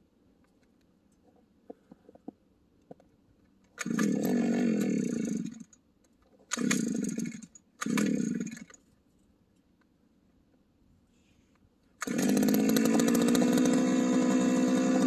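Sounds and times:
small engine pull-starting: 3.7 - 5.8, 6.5 - 8.8, 12.0 - 15.0.

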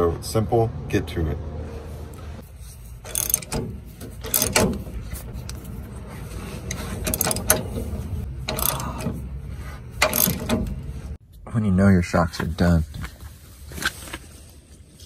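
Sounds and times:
ratchet wrench clicking: 3.0 - 5.7, 6.6 - 9.3, 10.0 - 10.9.

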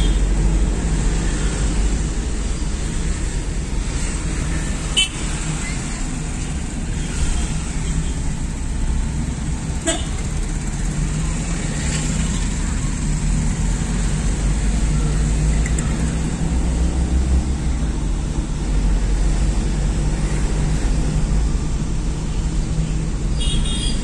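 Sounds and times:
vehicle engine and road noise: 0.0 - 24.0
car horn toots: 9.8 - 10.2.

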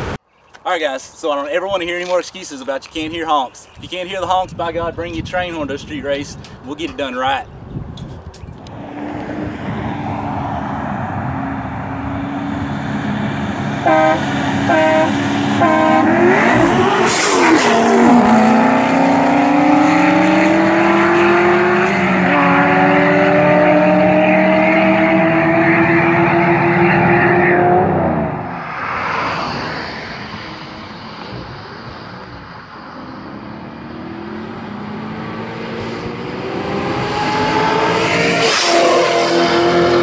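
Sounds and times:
sports car engines revving hard: 8.6 - 28.6, 29.6 - 40.0
train horn blasts: 13.8 - 16.2.

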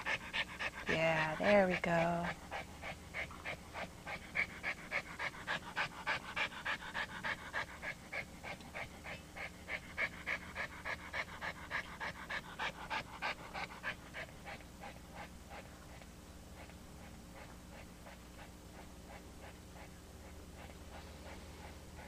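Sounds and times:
dog panting: 0.0 - 22.0.

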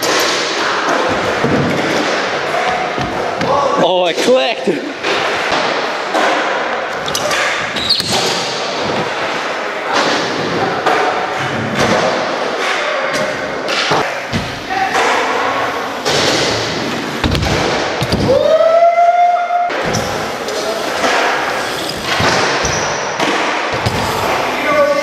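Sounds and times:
bikes landing on wood: 16.0 - 18.4.

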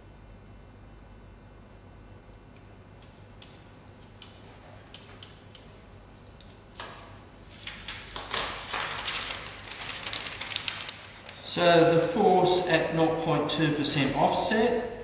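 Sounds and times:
paper rustling and crackling: 6.8 - 11.6.

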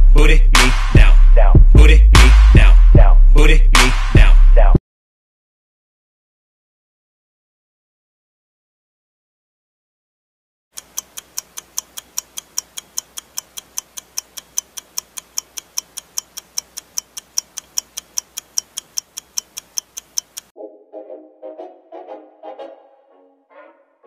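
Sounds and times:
clock ticking: 10.8 - 20.6.

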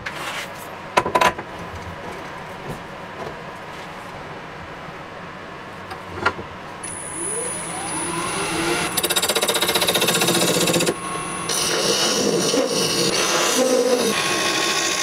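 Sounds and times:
lathe motor whine: 6.8 - 15.0.

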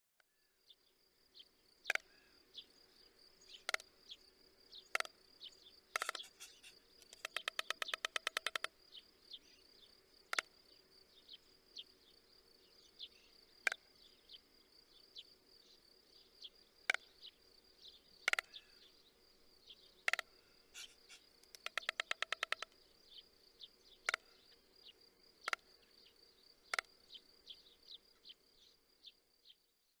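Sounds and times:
sharp clicks and small chirps: 1.8 - 2.7, 3.4 - 9.5, 10.3 - 10.6, 13.0 - 14.4, 16.4 - 17.4, 18.2 - 18.9, 19.7 - 23.2, 23.9 - 29.2
stork bill clattering: 6.0 - 8.7, 20.1 - 22.7.

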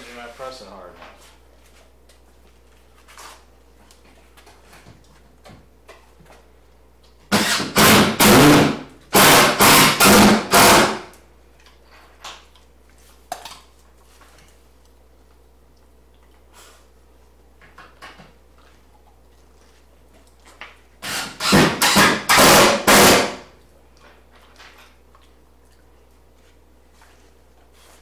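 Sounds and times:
power driver driving screw: 7.3 - 11.0, 21.0 - 23.4.

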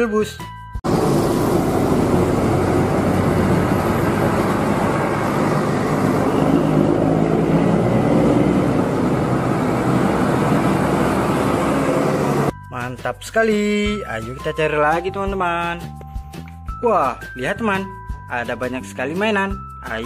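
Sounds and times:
coaches driving past: 0.9 - 12.5.

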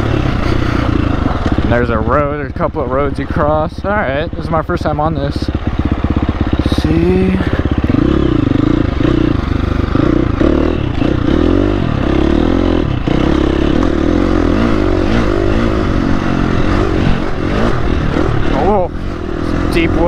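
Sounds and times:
dirt bike engine revving: 0.0 - 20.0.

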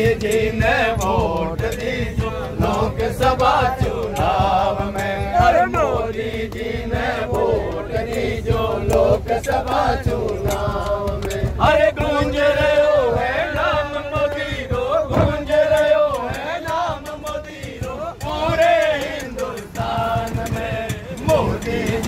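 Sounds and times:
men chanting and singing: 0.0 - 22.0
hand claps: 6.3 - 11.8.

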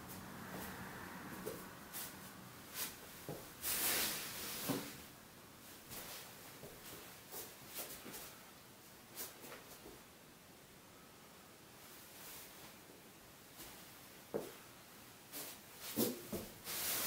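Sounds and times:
footsteps in socks on foam mats: 0.1 - 3.6.

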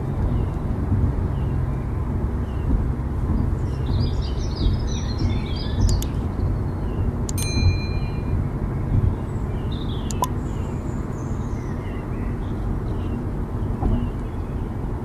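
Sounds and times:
road and engine rumble: 0.0 - 15.0
short bright chime: 7.4 - 8.4
click: 10.1 - 10.3.

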